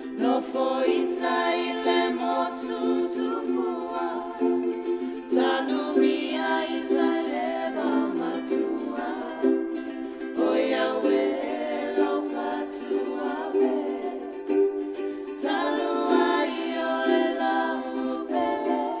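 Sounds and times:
person singing: 0.0s - 19.0s
plucked string instrument: 0.0s - 19.0s.

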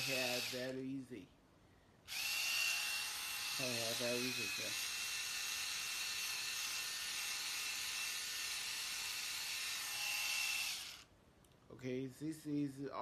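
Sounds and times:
electric shaver motor whining: 0.0s - 0.8s, 2.1s - 11.1s.

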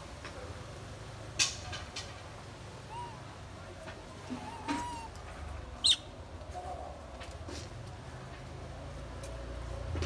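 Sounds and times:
soft monkey calls: 2.7s - 7.0s.

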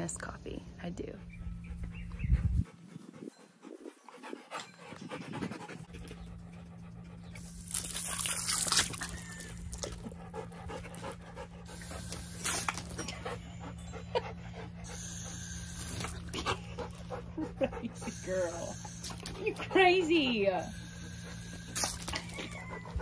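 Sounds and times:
dog panting: 1.1s - 7.7s, 9.6s - 12.4s, 13.0s - 15.2s, 16.2s - 21.7s
hose spray hissing: 11.7s - 13.0s.

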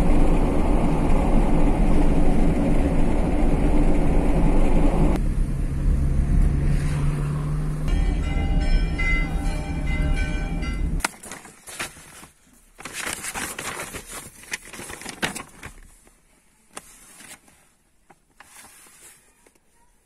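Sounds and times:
paper map rustling and crinkling: 11.0s - 20.0s.

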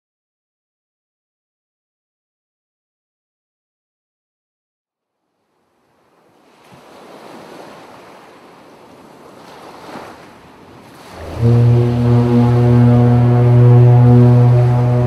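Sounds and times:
sea surf washing: 5.8s - 15.0s
loud low humming drone: 11.2s - 15.0s.

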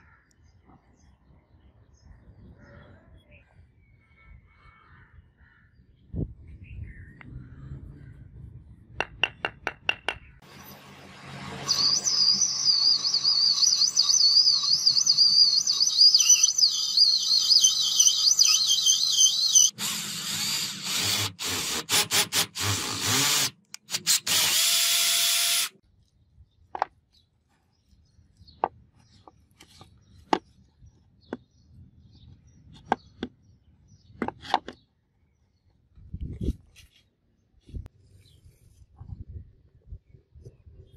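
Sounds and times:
electric drill boring into brass: 17.2s - 25.8s.

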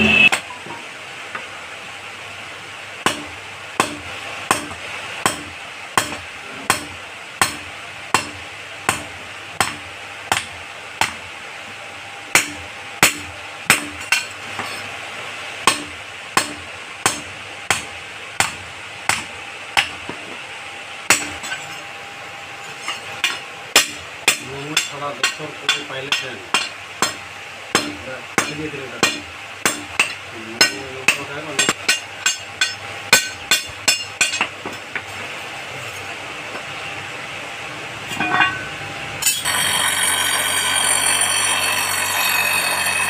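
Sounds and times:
hammer striking hot metal on anvil: 3.0s - 11.2s, 12.3s - 14.8s, 15.6s - 20.1s, 21.1s - 21.8s, 22.7s - 35.0s, 38.1s - 43.0s.

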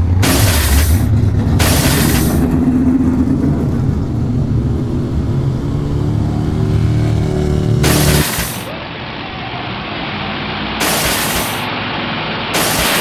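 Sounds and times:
monster truck engine revving: 0.0s - 8.7s.

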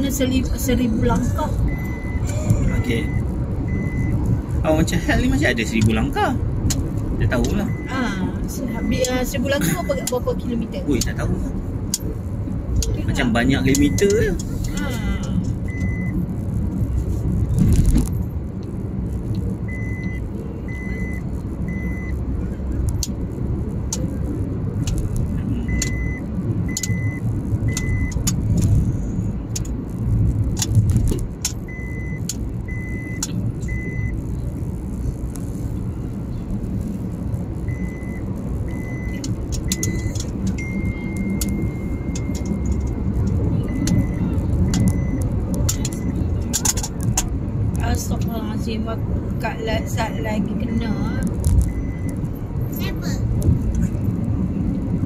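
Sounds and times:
tyre and engine rumble: 0.0s - 55.0s
high electronic beeps: 0.1s - 6.1s, 7.2s - 11.0s, 12.8s - 16.2s, 19.6s - 22.9s, 24.9s - 28.3s, 31.6s - 34.3s, 37.2s - 46.5s, 49.8s - 52.3s.

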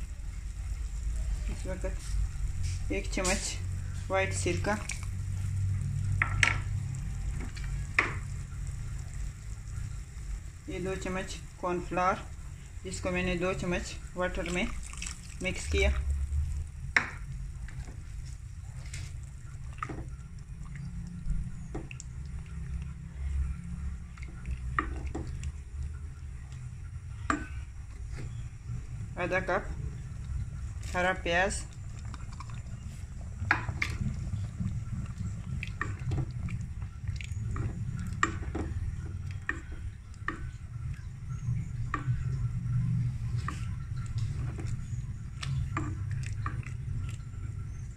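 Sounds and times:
low steady hum: 0.0s - 47.9s
soup sloshing: 1.4s - 5.5s, 11.7s - 26.0s, 29.6s - 47.9s
spatula stirring soup: 30.0s - 47.9s.

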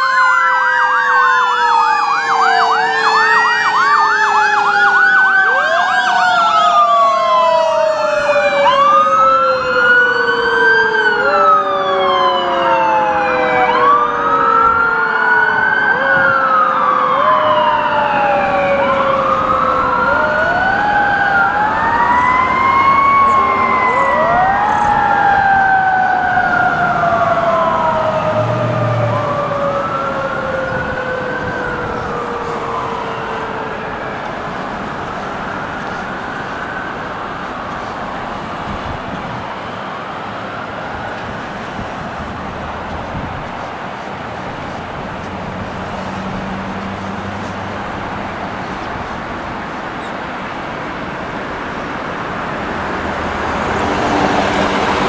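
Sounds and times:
fast warbling siren yelp: 0.0s - 43.6s
emergency sirens wailing: 0.0s - 55.0s
long falling siren tone: 0.0s - 55.0s.

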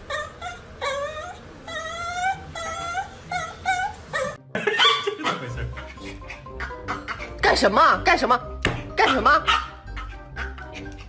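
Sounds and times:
small dog whimpering: 0.0s - 4.4s.

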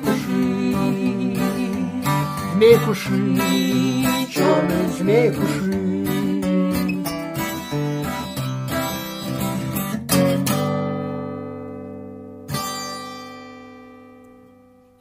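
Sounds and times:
acoustic guitar chords strummed: 0.0s - 15.0s.

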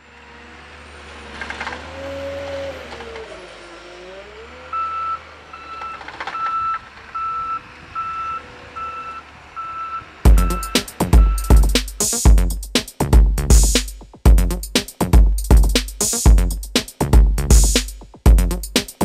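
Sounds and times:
diesel engine running: 0.0s - 19.0s
backup alarm beeping: 4.7s - 11.6s.

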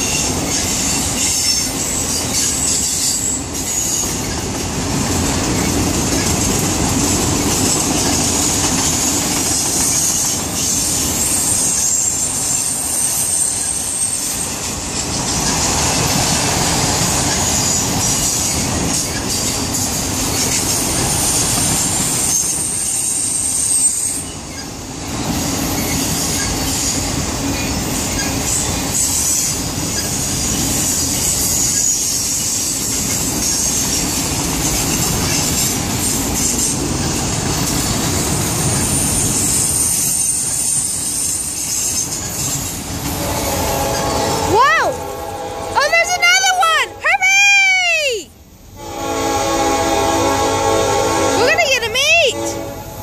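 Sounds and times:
high wheel squeal: 0.0s - 4.4s, 9.5s - 16.2s, 17.2s - 24.8s, 25.7s - 34.2s, 37.8s - 44.9s
freight train wheels rumbling: 0.0s - 53.0s.

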